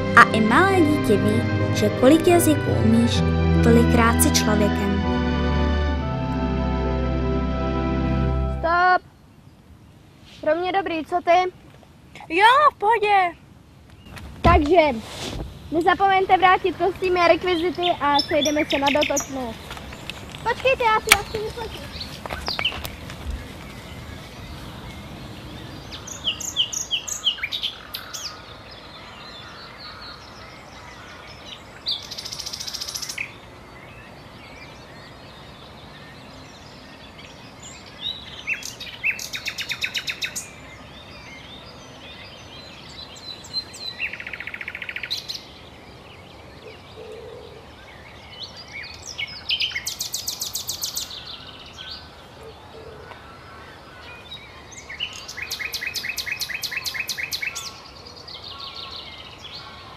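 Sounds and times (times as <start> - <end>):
open-air background hiss: 0.0 - 59.9
songbirds singing and trilling: 15.7 - 59.9.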